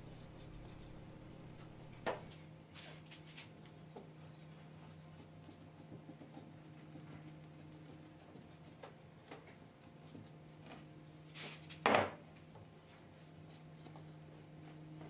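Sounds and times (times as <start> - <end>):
low steady hum: 0.0 - 2.4.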